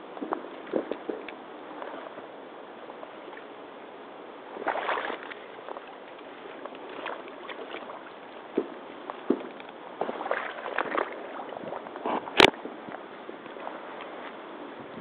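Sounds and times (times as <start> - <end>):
boots sloshing through water: 4.5 - 14.4.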